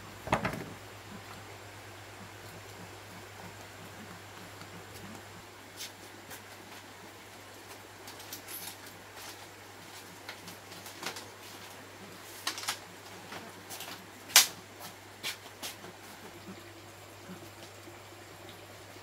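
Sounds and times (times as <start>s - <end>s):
bamboo strips clattering: 0.2s - 0.8s, 8.0s - 11.7s, 12.3s - 14.6s.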